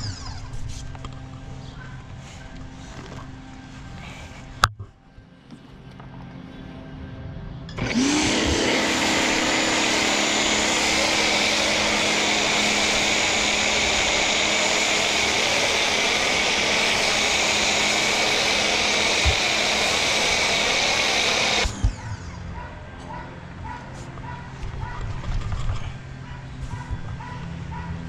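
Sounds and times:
pressure washer motor whine: 0:07.7 - 0:22.3.

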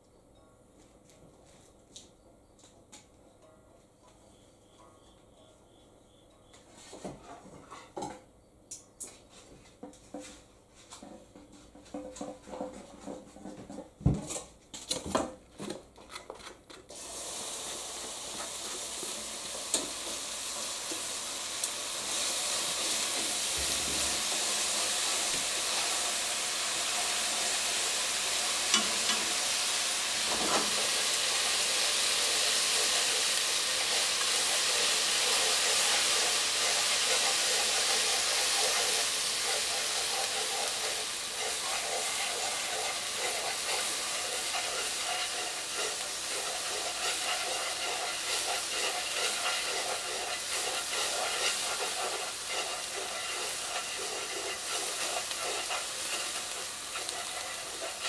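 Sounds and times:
food sizzling in a pan: 0:16.9 - 0:58.0.

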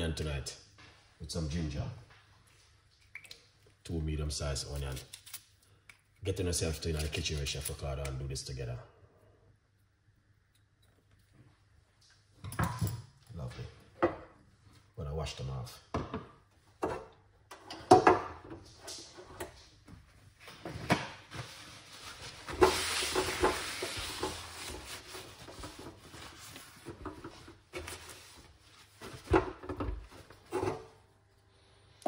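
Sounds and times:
paper towel rubbing hotplate: 0:21.3 - 0:29.4.

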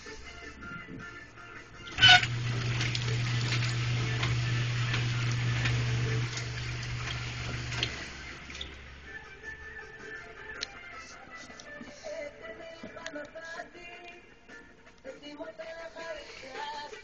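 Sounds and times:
conveyor motor humming: 0:01.9 - 0:09.2.

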